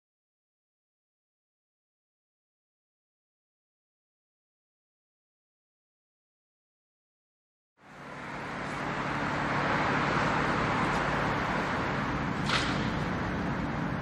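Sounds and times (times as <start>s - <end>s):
street traffic noise: 7.8s - 14.0s.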